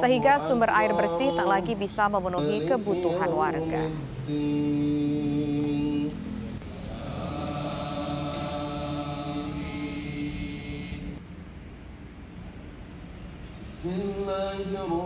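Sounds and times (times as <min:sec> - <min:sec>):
person chanting a prayer: 0:00.0 - 0:06.2, 0:06.8 - 0:11.2.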